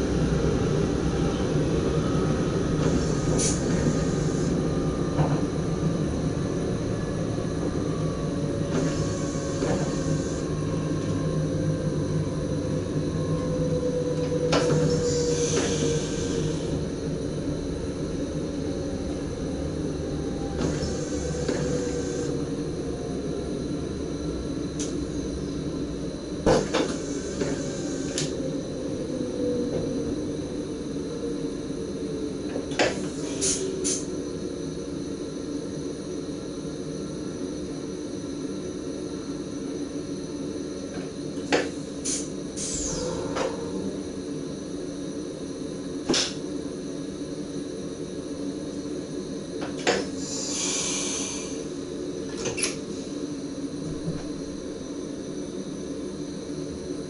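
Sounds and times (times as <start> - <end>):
train motors humming: 0.0 - 35.8, 40.8 - 46.8.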